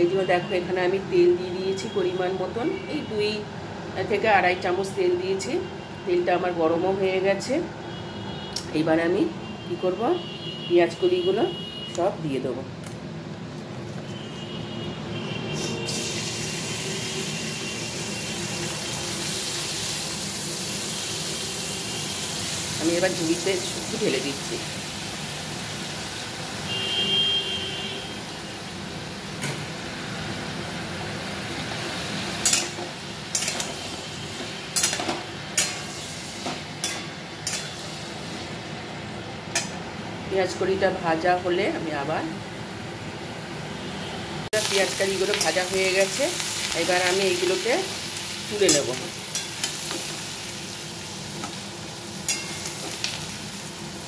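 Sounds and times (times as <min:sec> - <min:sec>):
onion stalks sizzling in oil: 0:15.5 - 0:54.0
metal spatula scraping wok: 0:32.2 - 0:38.3, 0:48.6 - 0:50.3, 0:52.2 - 0:53.2.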